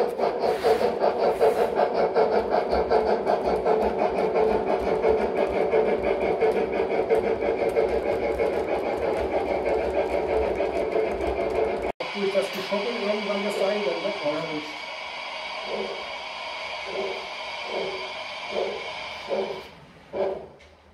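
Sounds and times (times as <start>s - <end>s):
model train clattering on track: 0.0s - 11.9s.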